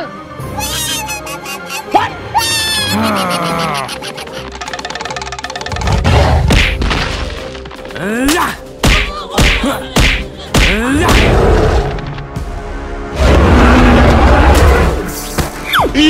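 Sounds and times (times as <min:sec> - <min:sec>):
cartoon whacks and thuds: 0:05.8 - 0:07.1, 0:08.3 - 0:11.4.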